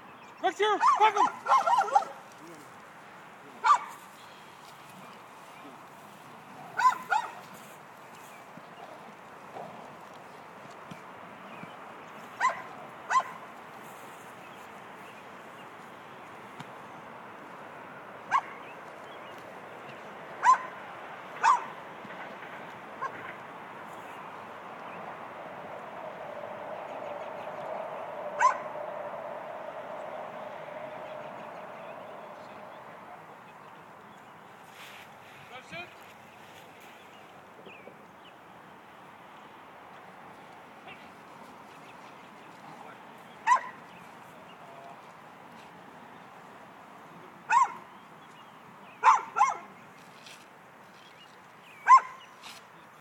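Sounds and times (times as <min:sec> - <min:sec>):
dog yelp: 0:00.8 - 0:02.2, 0:03.6 - 0:03.9, 0:06.8 - 0:07.4, 0:12.4 - 0:13.4, 0:20.4 - 0:20.7, 0:21.4 - 0:21.7, 0:28.4 - 0:28.7, 0:43.4 - 0:43.8, 0:47.5 - 0:47.8, 0:49.0 - 0:49.7, 0:51.8 - 0:52.2.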